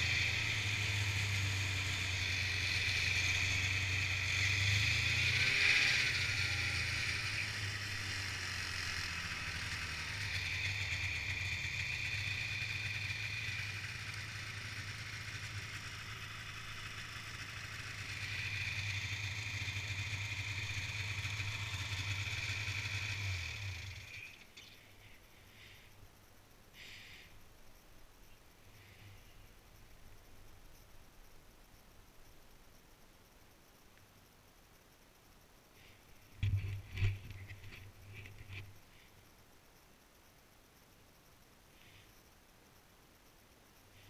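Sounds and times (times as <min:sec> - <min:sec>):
snowmobile engine running: 0:00.0 - 0:24.4.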